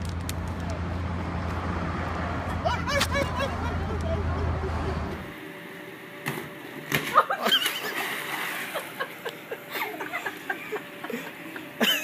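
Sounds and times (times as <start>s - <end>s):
people laughing: 2.5s - 5.2s, 7.1s - 12.0s.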